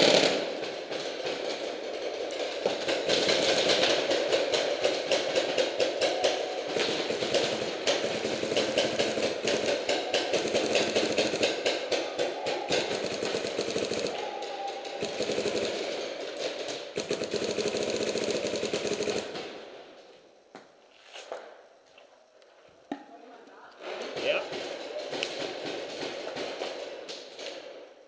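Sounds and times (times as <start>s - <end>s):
paintball markers firing rapidly: 0.0s - 19.8s.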